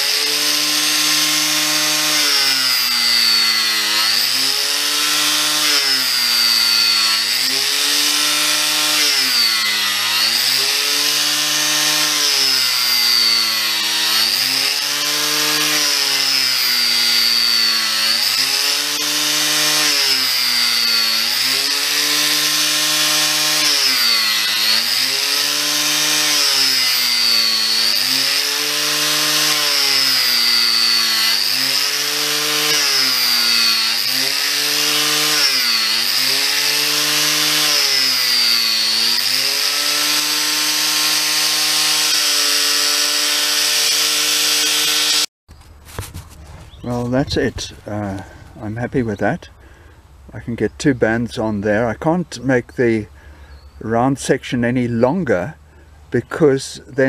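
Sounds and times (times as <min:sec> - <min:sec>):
angle grinder cutting wood: 0:00.0 - 0:45.3.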